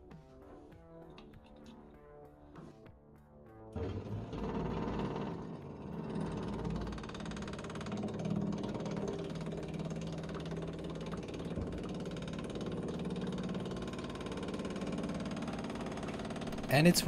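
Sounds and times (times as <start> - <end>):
electric fuel pump ticking hum: 6.5 - 16.7.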